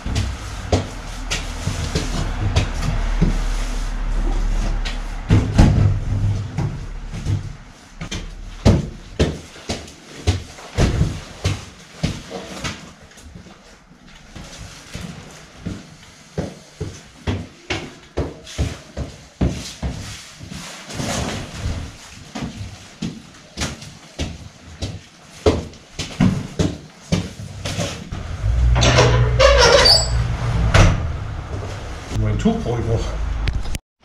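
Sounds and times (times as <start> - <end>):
footsteps on stone stairs: 0.0 - 3.5
low rumble with rustling: 0.0 - 16.2, 27.3 - 33.8.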